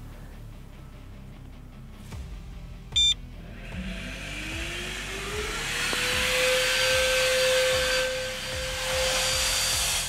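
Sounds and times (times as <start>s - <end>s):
vacuum blower whine: 3.0s - 10.0s.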